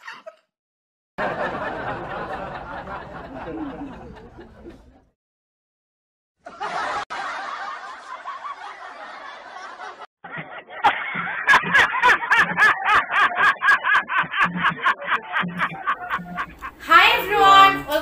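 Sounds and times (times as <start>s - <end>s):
man laughing loudly: 6.5s - 16.8s.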